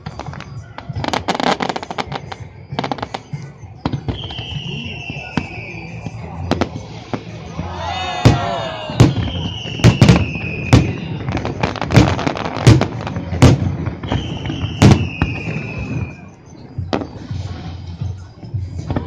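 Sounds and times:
firework whistle falling in pitch: 0:00.0 - 0:12.2, 0:14.0 - 0:16.4
fireworks bursting bangs: 0:00.0 - 0:19.0.

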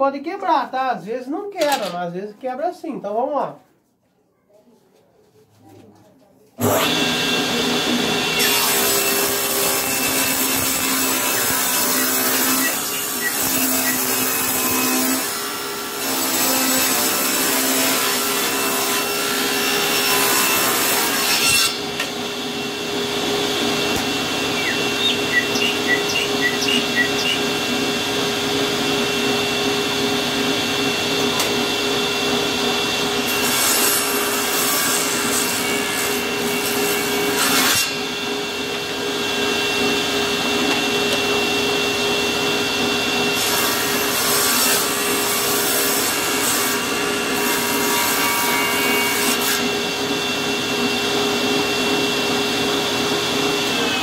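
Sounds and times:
table saw cutting wood: 0:06.6 - 0:54.0
table saw running: 0:06.6 - 0:54.0.

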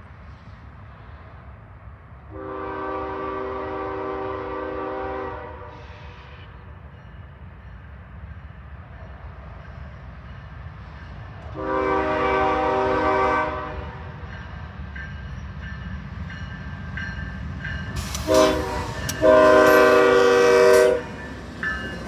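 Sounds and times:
locomotive air horn blast: 0:02.3 - 0:06.6, 0:11.6 - 0:14.1, 0:18.0 - 0:21.2.

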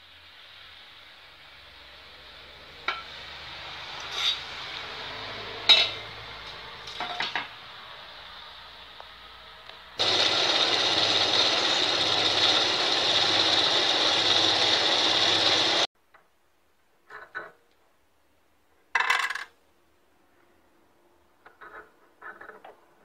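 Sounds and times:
lathe cutting metal: 0:10.0 - 0:15.9
low motor hum: 0:10.0 - 0:15.9.

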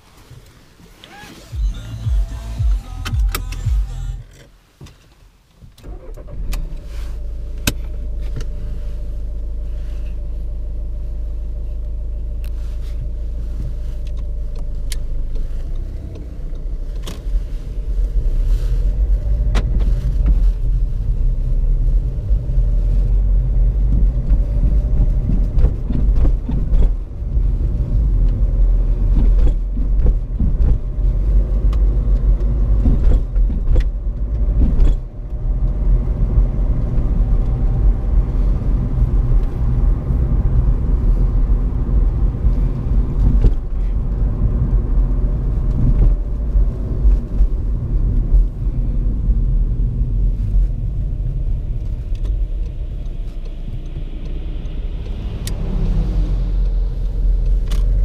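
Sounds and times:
road rumble: 0:00.0 - 0:58.0
diesel engine idling: 0:01.4 - 0:04.4.

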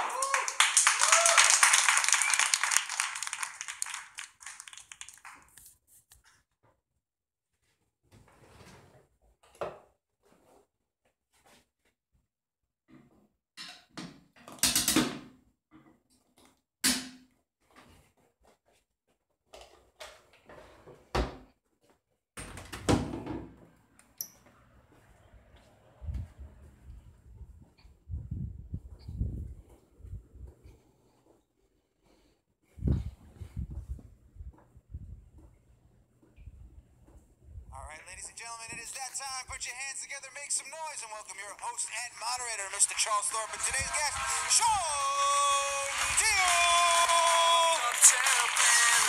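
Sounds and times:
audience clapping: 0:00.0 - 0:05.6, 0:39.7 - 0:49.0.

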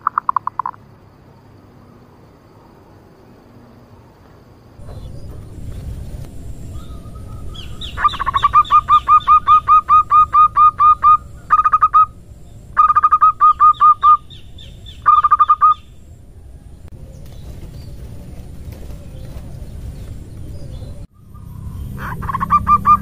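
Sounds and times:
dove calling hoarse notes: 0:04.8 - 0:23.0.

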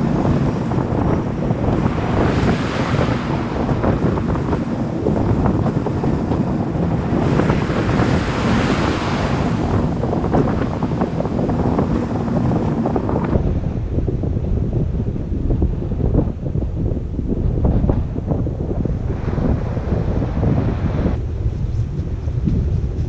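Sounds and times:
surf breaking on a beach: 0:00.0 - 0:23.0
wind buffeting microphone: 0:00.0 - 0:23.0.

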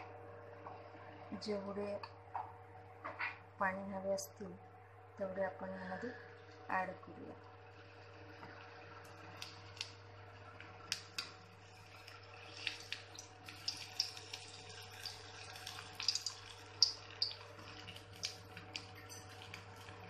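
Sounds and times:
deep-frying sizzle with pops: 0:07.5 - 0:20.0.

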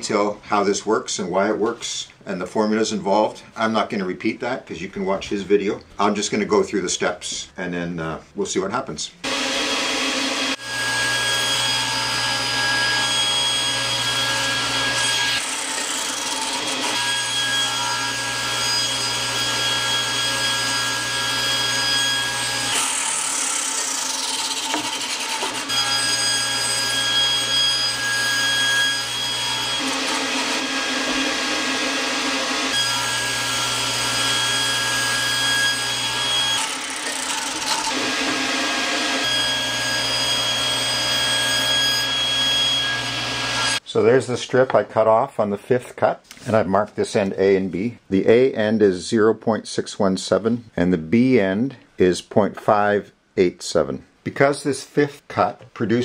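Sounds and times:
saw cutting wood: 0:09.2 - 0:43.8
table saw whining: 0:09.2 - 0:43.8.

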